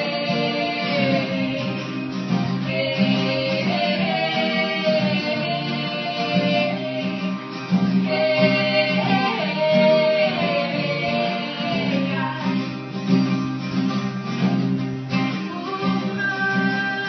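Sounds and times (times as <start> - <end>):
person singing: 0.0 - 2.0, 2.6 - 7.4, 8.0 - 12.7, 15.3 - 17.0
strummed acoustic guitar: 0.0 - 17.0.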